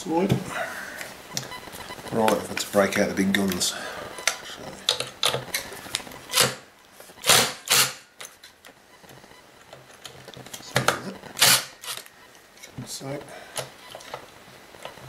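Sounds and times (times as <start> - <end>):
cordless power driver bursts: 6.3 - 6.6, 7.2 - 8.0, 11.4 - 12.0.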